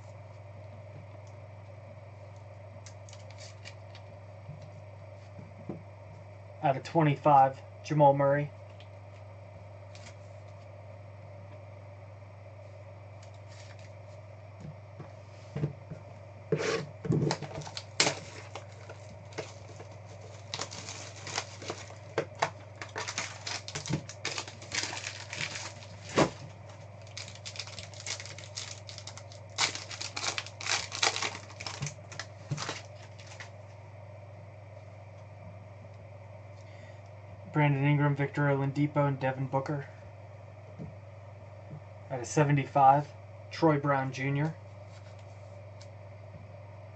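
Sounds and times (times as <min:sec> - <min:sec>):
steady low hum: 0:00.0 - 0:46.9
card wrappers crinkling and tearing: 0:02.8 - 0:04.1, 0:17.2 - 0:33.5.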